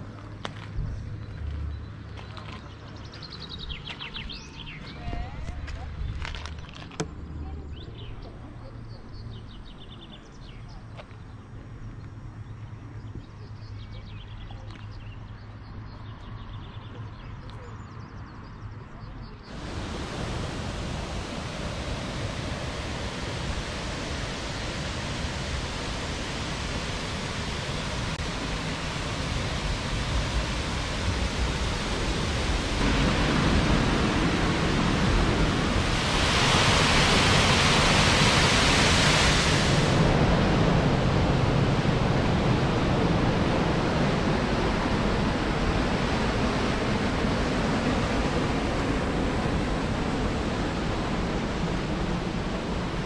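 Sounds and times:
river water rushing over rocks: 19.5s - 52.8s.

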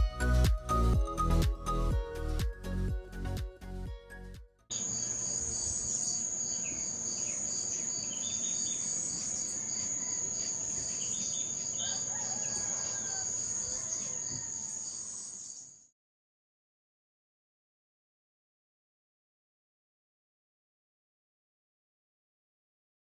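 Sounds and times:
crickets trilling: 4.7s - 15.8s
pulsing cricket chirps: 4.7s - 15.9s.

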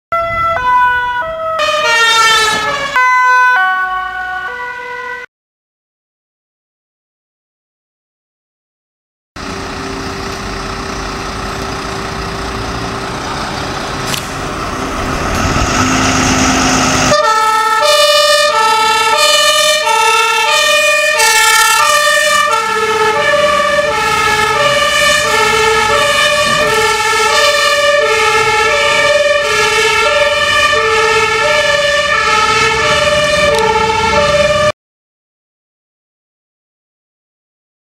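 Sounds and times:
fire engine engine running: 0.1s - 5.1s, 9.4s - 34.8s
two-tone siren: 0.1s - 5.3s, 15.8s - 34.8s.

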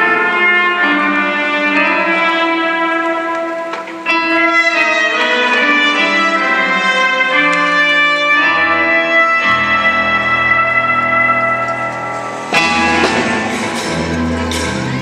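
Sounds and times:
brass music: 0.0s - 15.0s
deep bass notes: 12.1s - 15.0s.

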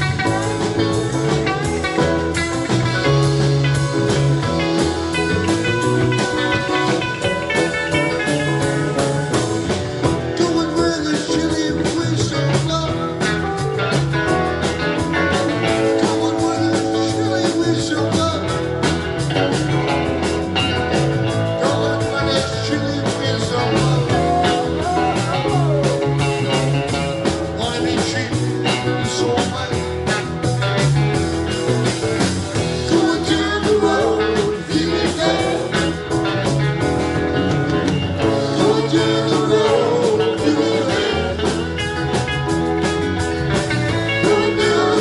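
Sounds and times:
live rock band playing: 0.0s - 45.0s
person singing: 10.1s - 13.3s, 15.7s - 18.7s, 21.5s - 26.2s, 27.6s - 30.0s, 32.7s - 36.1s, 38.3s - 41.8s, 44.0s - 45.0s.

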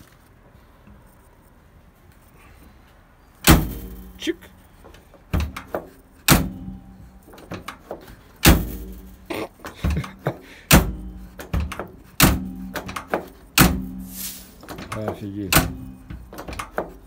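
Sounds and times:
truck door closing thunk: 3.4s - 4.2s, 5.3s - 6.8s, 7.4s - 9.2s, 9.8s - 17.0s.

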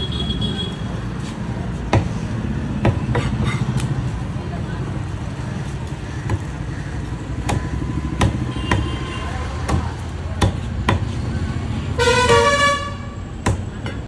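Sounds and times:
low traffic rumble: 0.0s - 14.0s
vehicle horn honking: 12.0s - 13.2s.

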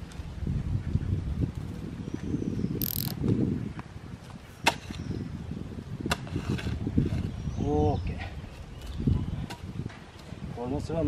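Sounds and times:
hoe scraping through dry soil: 6.2s - 7.5s.

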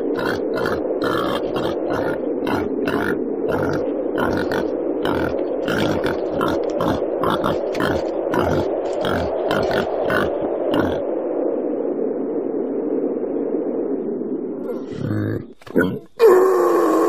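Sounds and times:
steady rushing noise: 0.0s - 15.6s
wild boar grunting: 0.1s - 11.0s.

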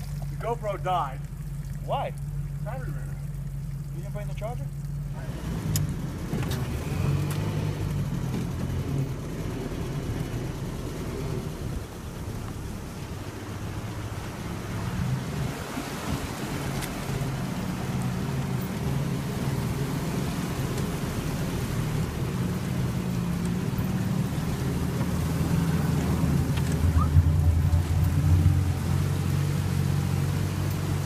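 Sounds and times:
truck engine at low revs: 0.0s - 31.0s
water washing around a truck: 0.0s - 31.0s.

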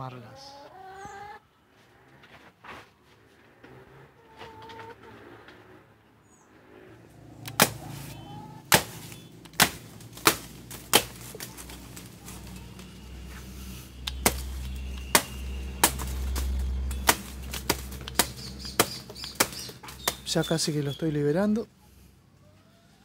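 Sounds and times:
machete chopping plant stem: 7.4s - 12.5s, 14.0s - 20.5s.

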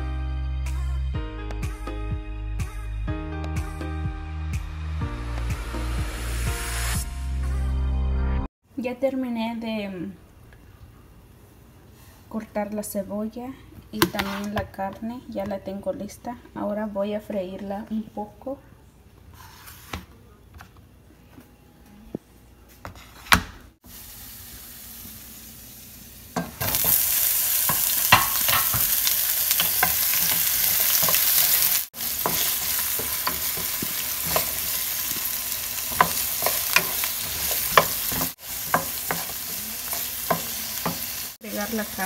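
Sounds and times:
onion sizzling in hot oil: 23.8s - 42.0s.

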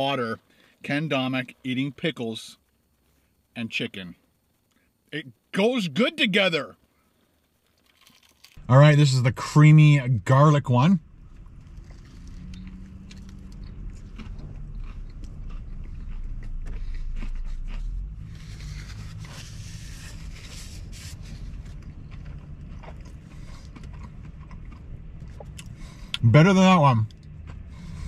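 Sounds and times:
man chewing crunchy food: 7.3s - 8.6s, 11.2s - 26.2s, 27.1s - 28.0s.

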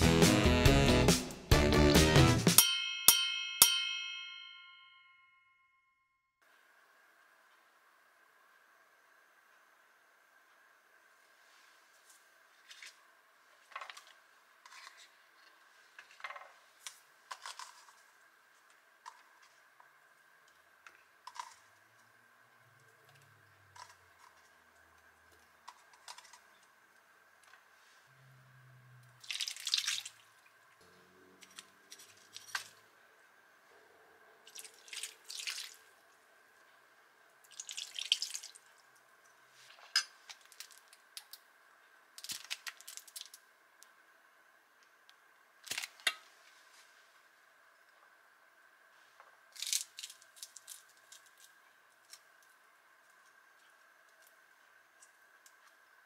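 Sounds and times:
faint steady hum: 2.7s - 56.0s
liquid splashing into a frying pan: 34.5s - 35.9s, 37.5s - 38.6s.

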